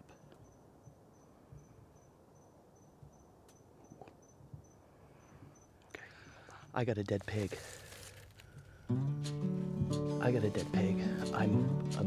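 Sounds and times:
cricket chirping: 0:00.0 - 0:06.7.

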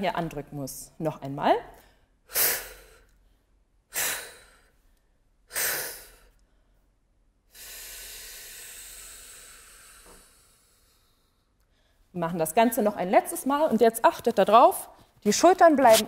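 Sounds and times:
short sharp breaths: 0:01.8 - 0:12.1
long hiss of exhaled air: 0:07.5 - 0:11.4.

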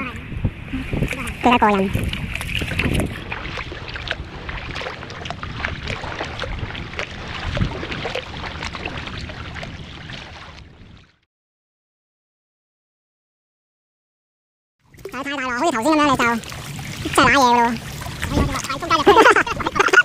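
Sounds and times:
water lapping against kayak: 0:00.0 - 0:11.2, 0:14.8 - 0:20.0
kayak paddle splashing: 0:00.6 - 0:11.2, 0:14.8 - 0:20.0.

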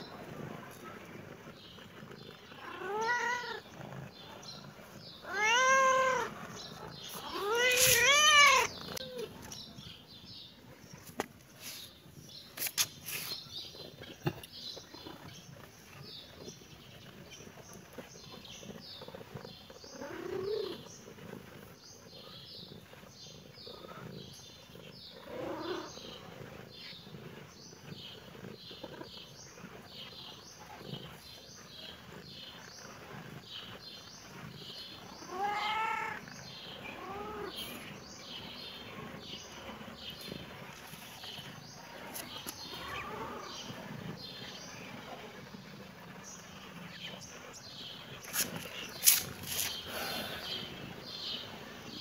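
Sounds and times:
small birds twittering: 0:00.0 - 0:52.0
cat meowing: 0:02.6 - 0:03.6, 0:05.2 - 0:06.3, 0:07.2 - 0:09.3, 0:35.3 - 0:36.2.

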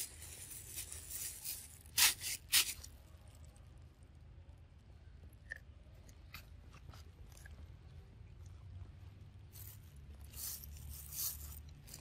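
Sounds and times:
monkey crunching corn: 0:06.2 - 0:07.6.

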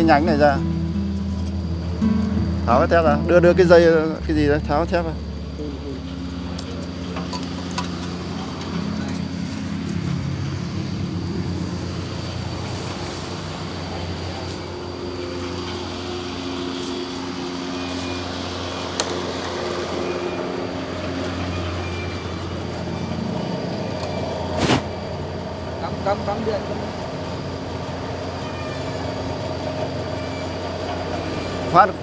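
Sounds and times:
engine running: 0:00.0 - 0:32.0.

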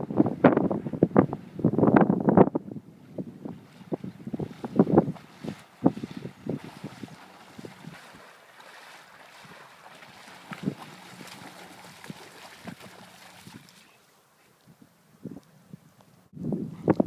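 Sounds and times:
wind on microphone: 0:00.0 - 0:08.3, 0:09.3 - 0:13.9, 0:14.6 - 0:17.0
dog splashing through water: 0:04.3 - 0:14.0.

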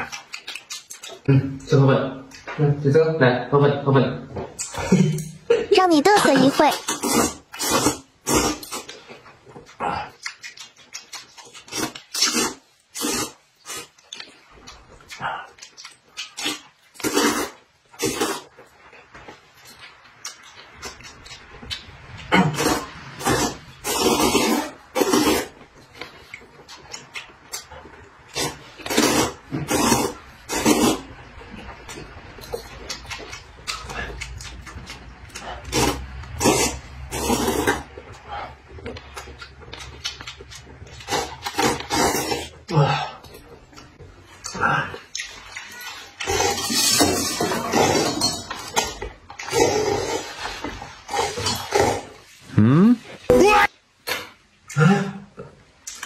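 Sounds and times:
person slurping noodles: 0:06.4 - 0:09.0, 0:11.7 - 0:13.9, 0:16.4 - 0:18.4, 0:22.3 - 0:25.6, 0:28.3 - 0:31.1, 0:35.4 - 0:38.6, 0:41.0 - 0:43.2, 0:49.4 - 0:53.0
mouth noises: 0:52.4 - 0:53.7.

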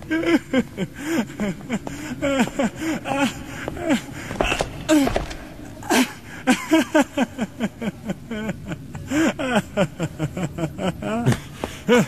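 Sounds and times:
man panting and groaning: 0:00.0 - 0:06.6.

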